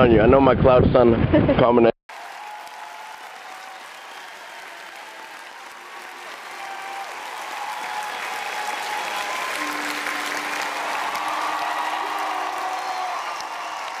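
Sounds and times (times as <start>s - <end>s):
crowd applause: 2.1s - 14.0s.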